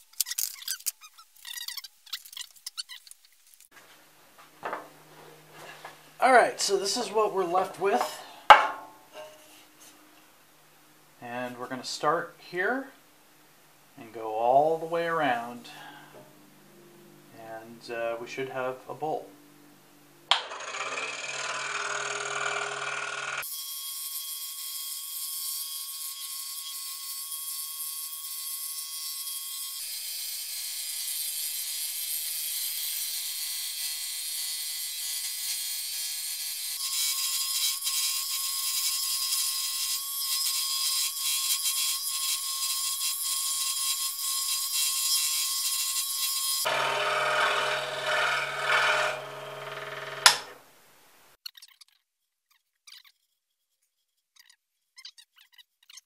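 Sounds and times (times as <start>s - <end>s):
scroll saw cutting wood: 20.3s - 50.6s.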